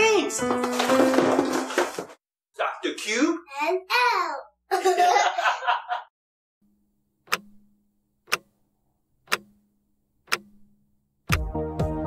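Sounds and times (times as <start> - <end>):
background music: 0.0 - 2.0, 11.3 - 12.0
clock ticking: 7.2 - 8.6, 9.2 - 11.5.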